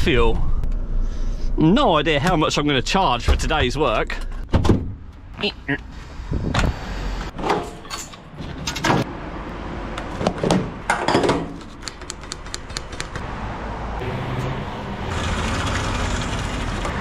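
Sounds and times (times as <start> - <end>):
steady low rumble: 0.0 - 7.3.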